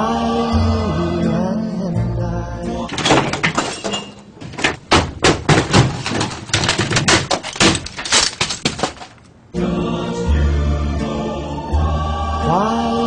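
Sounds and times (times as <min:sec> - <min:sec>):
objects crashing and clattering: 0:02.9 - 0:09.4.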